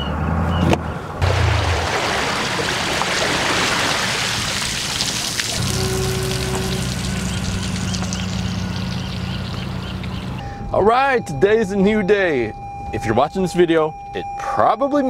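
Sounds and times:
water streaming and splashing: 0:01.2 - 0:10.4.

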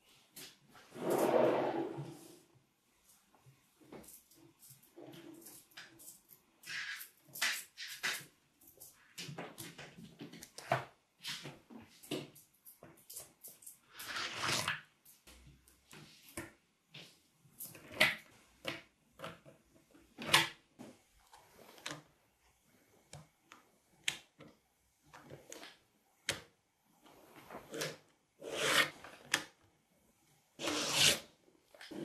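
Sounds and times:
plastic card sliding: 0:30.6 - 0:31.3.

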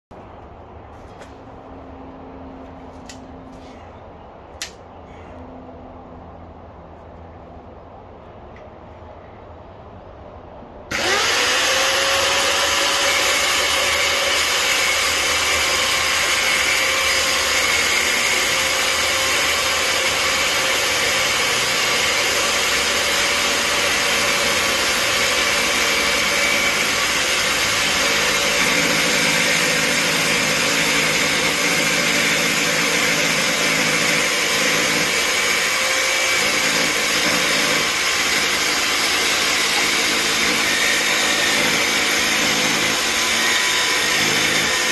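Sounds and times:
power tool motor whine: 0:10.9 - 0:44.9.

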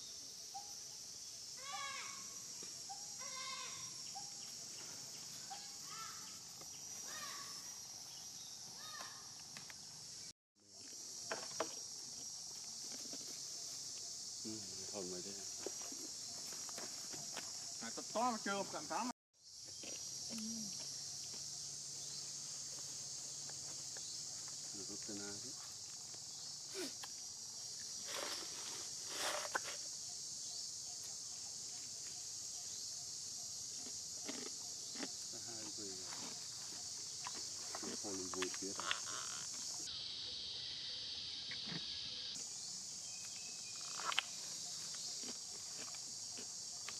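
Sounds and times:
insect chorus drone: 0:00.0 - 0:46.9
short insect chirp: 0:00.0 - 0:46.9
rustles: 0:22.2 - 0:30.0.

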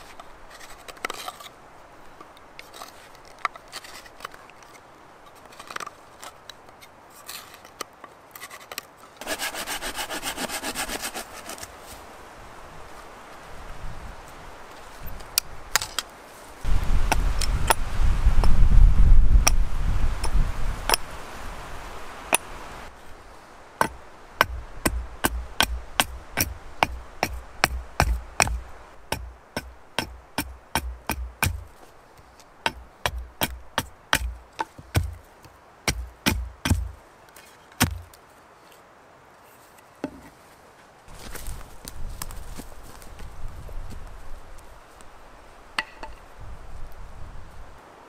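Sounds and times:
axe chopping wood: 0:23.8 - 0:31.7, 0:32.7 - 0:35.2, 0:35.9 - 0:37.0, 0:37.8 - 0:38.2
sharp knocks: 0:23.8 - 0:31.7, 0:32.7 - 0:35.2, 0:35.9 - 0:37.0.

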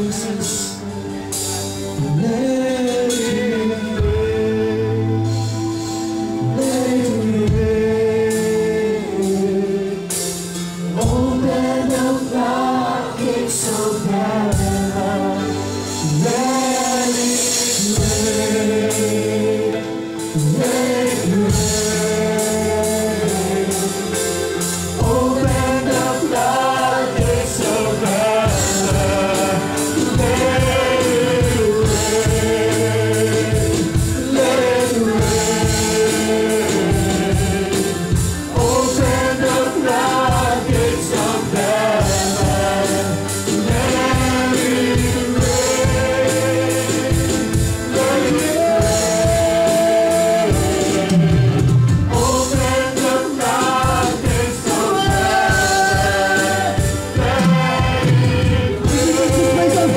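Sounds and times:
bass guitar: 0:00.0 - 0:59.9
electric guitar: 0:00.0 - 0:59.9
group singing slow melody: 0:00.0 - 0:59.9
keyboard: 0:00.0 - 0:59.9
steady beat: 0:20.4 - 0:59.9.

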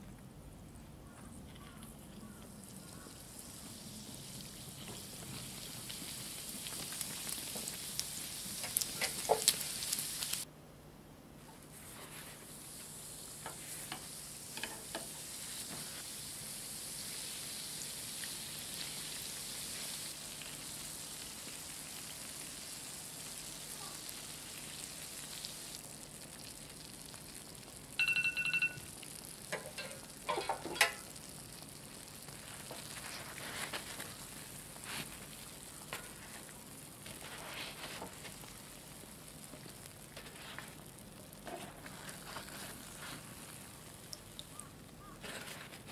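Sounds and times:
doughnuts sizzling in hot oil: 0:02.2 - 0:10.5, 0:11.7 - 0:45.8
two-tone electronic beep: 0:28.0 - 0:28.9.

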